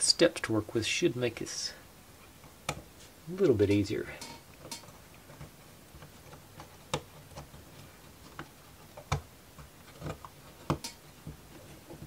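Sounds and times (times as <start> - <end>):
wooden pieces clicking and tapping: 2.3 - 2.9, 3.7 - 12.0.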